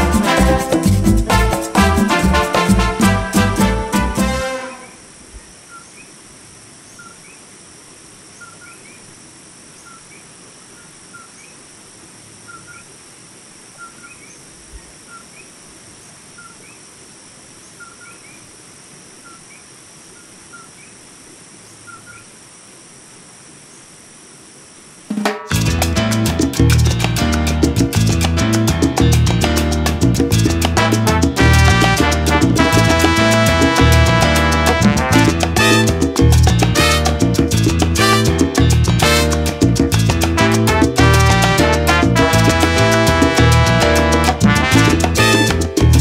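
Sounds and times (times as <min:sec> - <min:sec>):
frogs chirping: 0:04.8 - 0:25.1.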